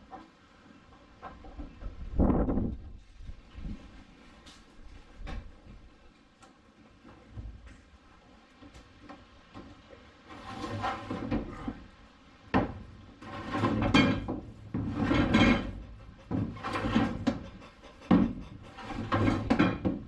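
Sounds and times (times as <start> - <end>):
cable dragging across floor: 10.2 - 11.8, 13.2 - 20.0.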